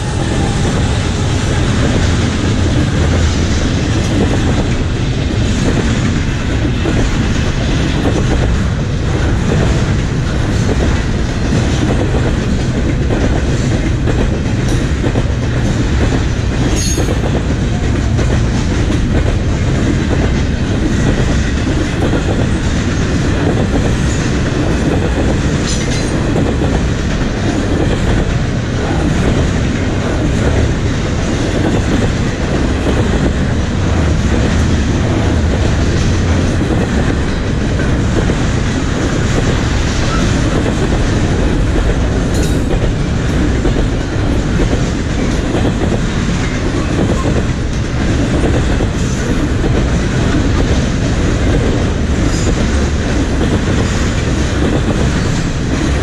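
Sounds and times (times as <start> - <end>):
train wheels rumbling on track: 0.0 - 56.0.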